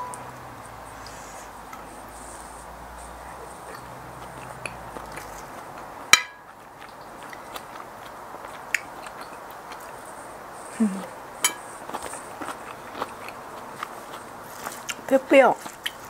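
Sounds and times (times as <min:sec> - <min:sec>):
chewing: 0:01.0 - 0:16.0
spoon clinking against plate: 0:06.2 - 0:06.5, 0:11.4 - 0:11.7.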